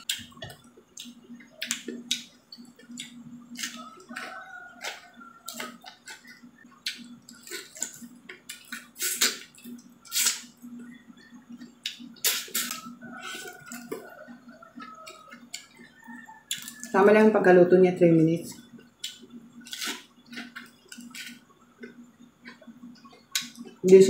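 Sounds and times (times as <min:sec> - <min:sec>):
chewing: 0:00.0 - 0:17.0, 0:18.6 - 0:23.8.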